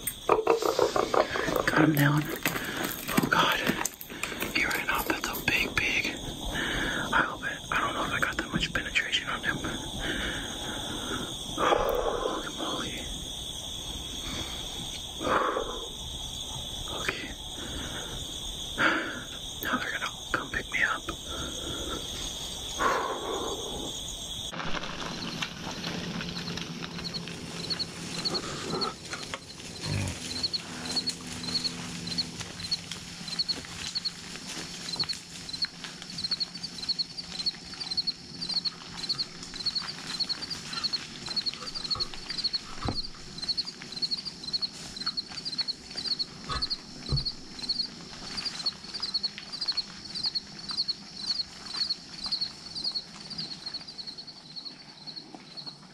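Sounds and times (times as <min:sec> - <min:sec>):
insects chirping: 0:00.0 - 0:55.9
dull knocks: 0:47.0 - 0:47.4.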